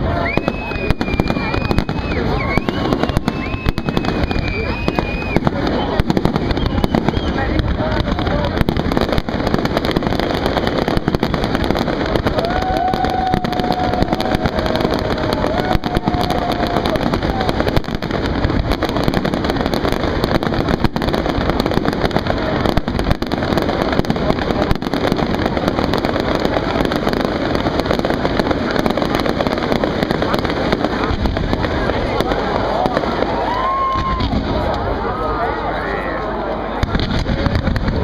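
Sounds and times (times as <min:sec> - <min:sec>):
fireworks bangs and crackling: 0:00.0 - 0:38.0
whistle-like tone: 0:00.1 - 0:07.4.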